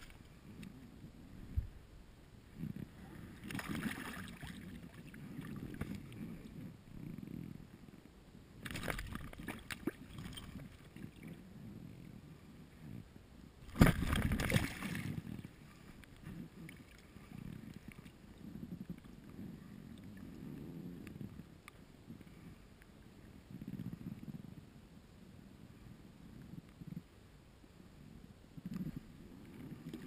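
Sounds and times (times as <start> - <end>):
water splashing and sloshing: 3.2 - 6.2, 8.6 - 11.4, 13.6 - 18.2.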